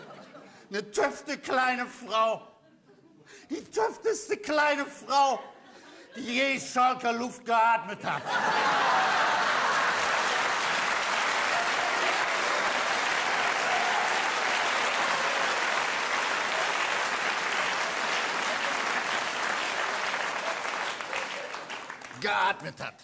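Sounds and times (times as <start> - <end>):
audience applauding: 8.3 - 22.5.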